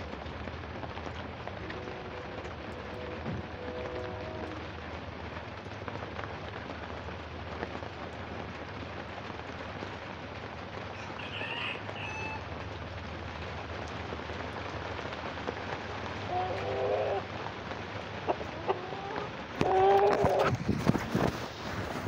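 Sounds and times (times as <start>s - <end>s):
heavy rain falling: 0.0s - 22.0s
bird call: 1.6s - 4.8s, 16.3s - 17.2s.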